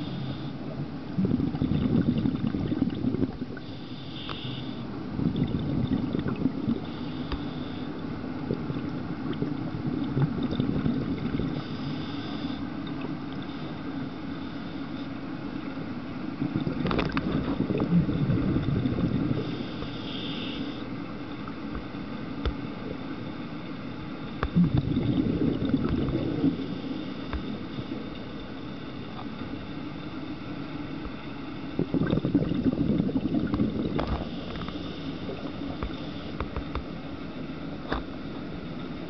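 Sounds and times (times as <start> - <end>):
low rumble of water: 0.0 - 39.0
bubbles gurgling underwater: 1.1 - 3.7, 5.1 - 6.9, 8.1 - 11.7, 16.3 - 19.7, 24.4 - 27.6, 31.7 - 36.6.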